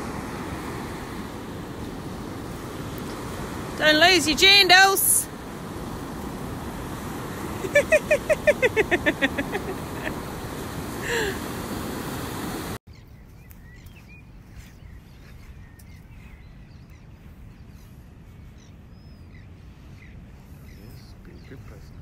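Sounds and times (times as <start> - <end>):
faint bird chirps: 12.9 - 22.0.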